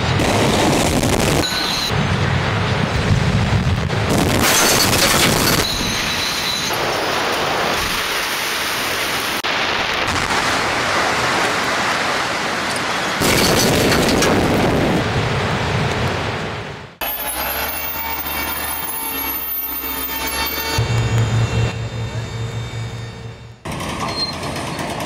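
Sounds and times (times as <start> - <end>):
building collapsing rumble: 0.0 - 6.0, 13.2 - 17.0
debris raining down: 9.4 - 15.2.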